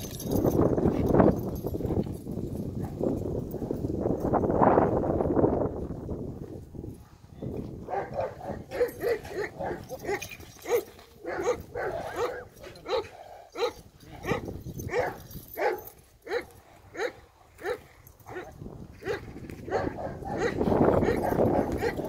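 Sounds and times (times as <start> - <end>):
dog barking: 7.9 - 22.0.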